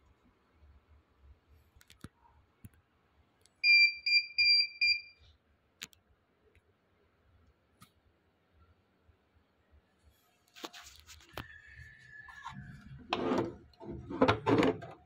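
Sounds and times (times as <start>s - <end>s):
electronic buzzer high beeps: 3.6s - 5.2s.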